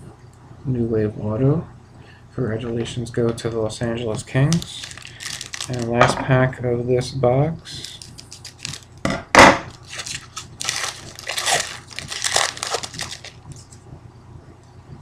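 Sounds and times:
foil wrapper crinkling: 4.4 - 6.1, 7.7 - 9.0, 9.7 - 13.8
scissors cutting foil pack: 4.5 - 5.9, 7.7 - 8.9, 9.7 - 13.4.

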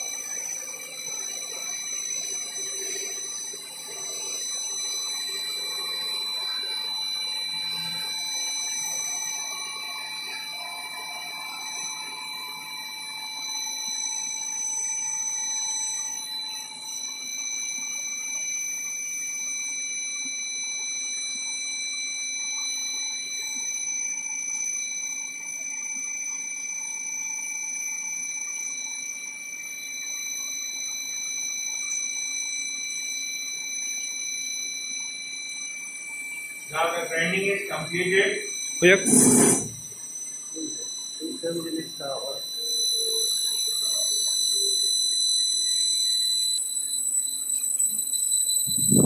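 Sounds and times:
grinding machine whine: 0.0 - 19.3, 36.1 - 49.0.

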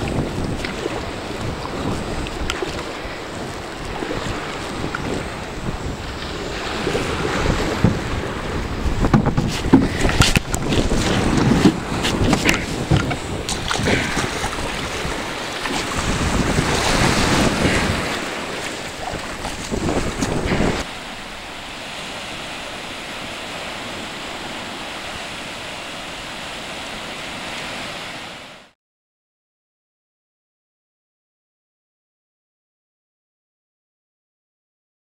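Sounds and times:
wind buffeting microphone: 0.0 - 25.6
surf washing up beach: 0.0 - 28.8
microphone handling knocks: 9.0 - 14.2.

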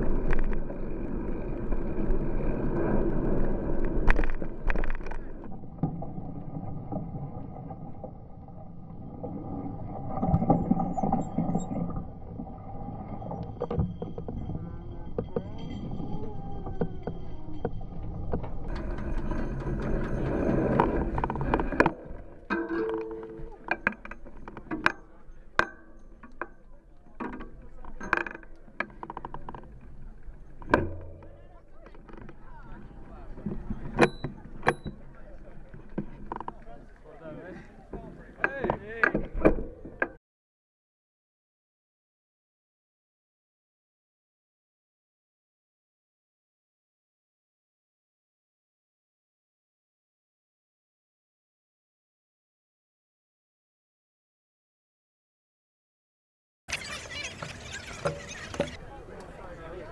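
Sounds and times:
crowd voices: 14.3 - 40.2, 56.7 - 59.9
people talking: 14.4 - 17.6, 26.6 - 40.2, 56.7 - 59.9
bike knocks and clinks: 16.8 - 36.8.

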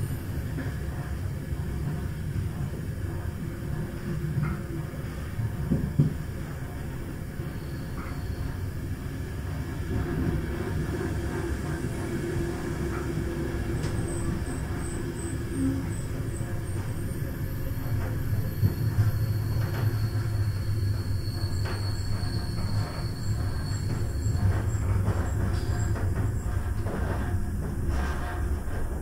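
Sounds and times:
train rumbling on track: 0.0 - 29.0
high wheel squeal: 18.4 - 24.8.

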